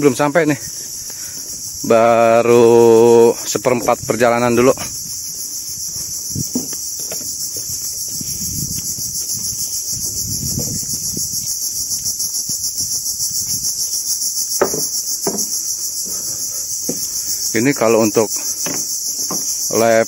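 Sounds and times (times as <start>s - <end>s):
insects droning: 0.0s - 20.0s
low dull thuds: 5.9s - 7.8s
sharp knock: 14.6s - 15.5s.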